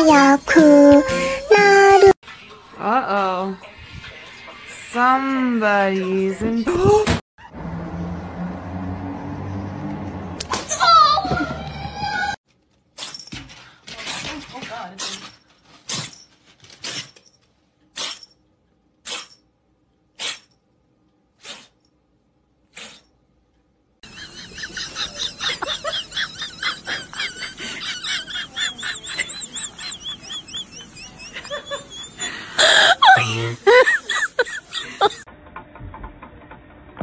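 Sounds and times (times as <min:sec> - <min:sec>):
cat sneezing: 0:17.9 - 0:18.3, 0:19.0 - 0:19.4, 0:20.2 - 0:20.5, 0:21.4 - 0:21.8, 0:22.7 - 0:23.1.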